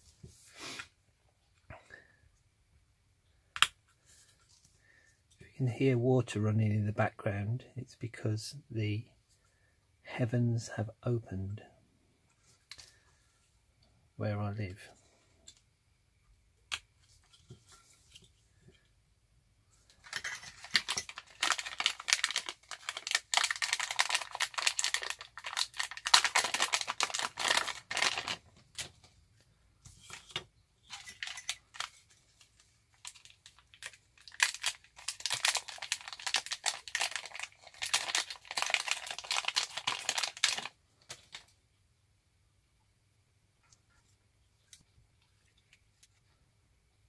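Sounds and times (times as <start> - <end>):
plastic bags crinkling: 19.9 - 28.9, 30.1 - 41.5.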